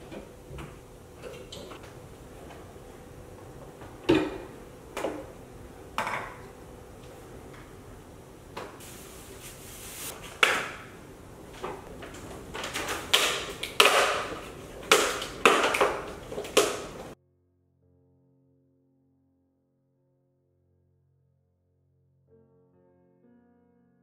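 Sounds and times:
plastic bags rustling: 8.8 - 17.2
plastic containers clicking and crinkling: 10.2 - 17.2.

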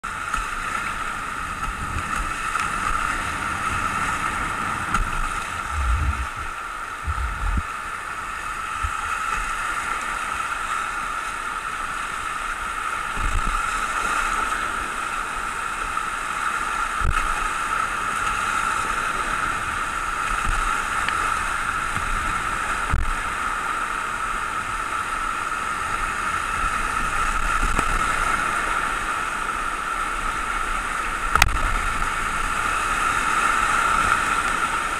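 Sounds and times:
whitewater rapids rushing: 0.0 - 34.9
short low thumps: 5.0 - 7.7.

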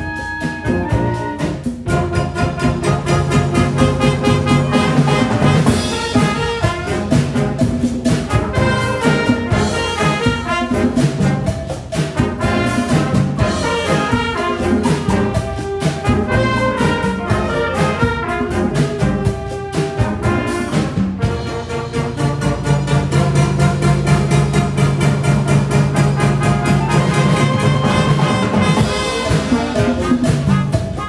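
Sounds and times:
flutes and clarinets: 0.0 - 7.5, 25.9 - 31.0
brass instruments: 0.0 - 31.0
drum kit steady beat: 0.0 - 31.0.

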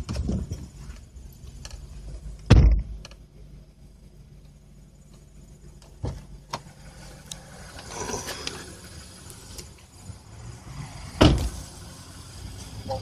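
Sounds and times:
low steady rumble: 0.0 - 13.0
loud thump: 2.5 - 3.0, 11.2 - 11.6.

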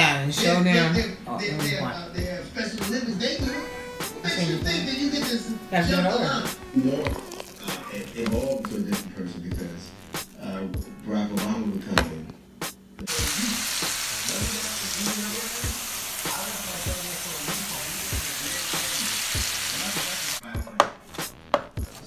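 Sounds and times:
food sizzling in a hot pan: 7.0 - 8.7, 13.1 - 20.4.

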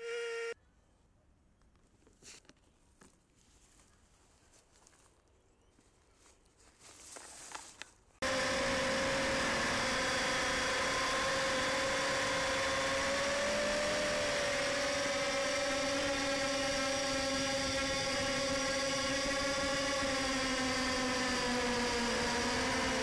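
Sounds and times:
quadcopter motors whining: 0.0 - 0.6, 8.2 - 23.0.

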